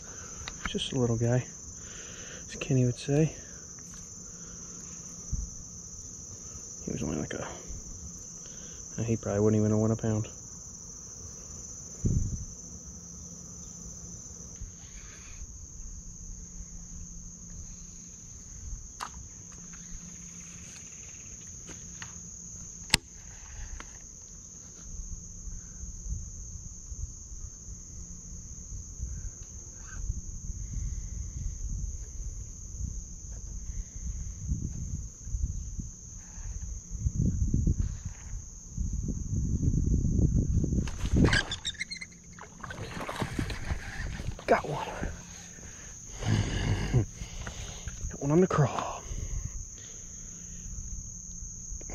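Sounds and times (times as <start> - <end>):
insects droning: 0.0 - 51.9
low rumble on microphone: 12.0 - 12.6, 24.9 - 41.7, 42.5 - 48.2.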